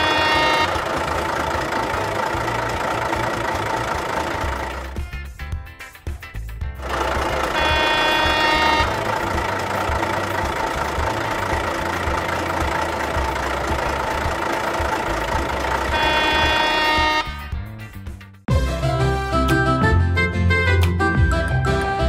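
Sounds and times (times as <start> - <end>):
toy engine idling rumble: 0.0 - 5.1, 6.8 - 17.3.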